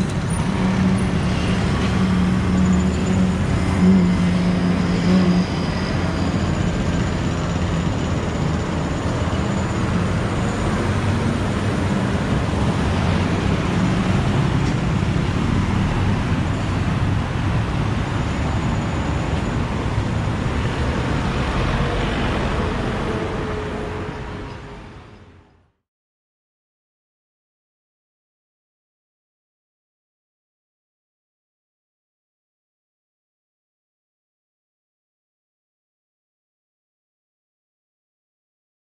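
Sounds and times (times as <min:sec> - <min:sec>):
roar of motor vehicles: 0:00.0 - 0:08.1.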